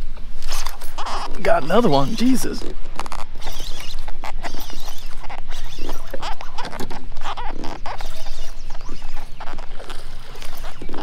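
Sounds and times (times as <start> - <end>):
fishing reel clicking and rasping: 3.0 - 10.9.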